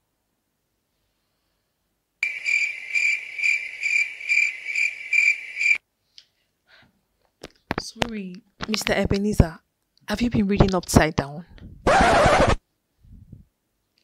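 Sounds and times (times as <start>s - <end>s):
crickets chirping: 2.2s - 5.8s.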